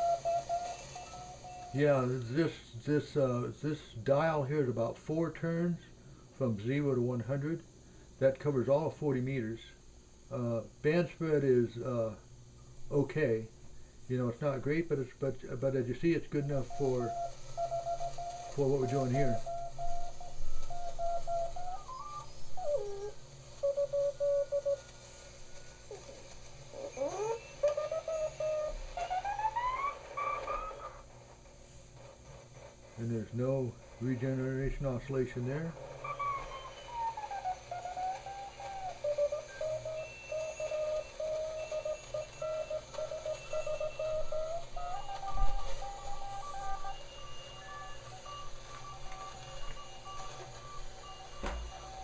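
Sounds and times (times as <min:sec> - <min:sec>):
morse code tones: 0:00.0 - 0:03.2, 0:15.5 - 0:31.1, 0:33.0 - 0:52.0
radio whistles sliding in pitch: 0:00.0 - 0:03.2, 0:15.6 - 0:31.2, 0:32.0 - 0:52.0.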